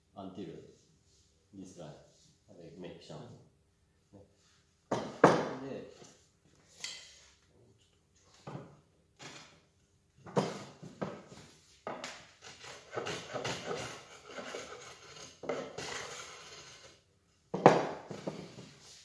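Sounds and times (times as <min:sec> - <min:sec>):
wooden knocks: 0:04.9 - 0:05.6, 0:17.5 - 0:18.6
hand plane strokes on wood: 0:12.0 - 0:17.0.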